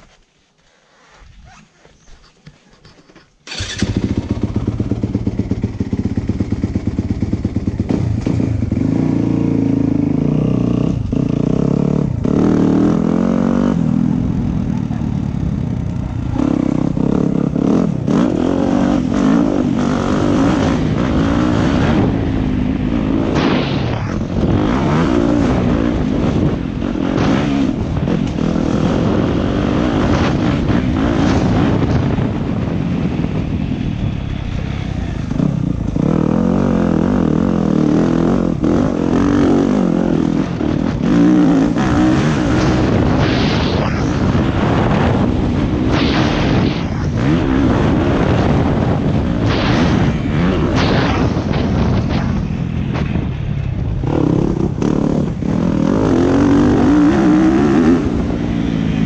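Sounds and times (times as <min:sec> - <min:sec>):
motocross bike engine revving: 0:03.4 - 0:53.2, 0:54.0 - 0:59.0.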